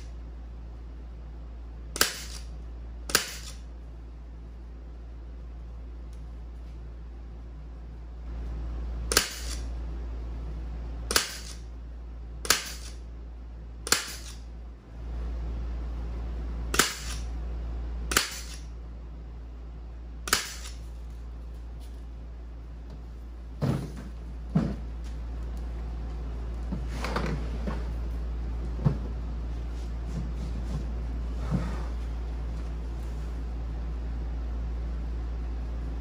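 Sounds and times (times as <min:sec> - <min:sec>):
steady low hum: 0:00.0 - 0:36.0
pneumatic upholstery gun snaps: 0:03.1 - 0:03.6.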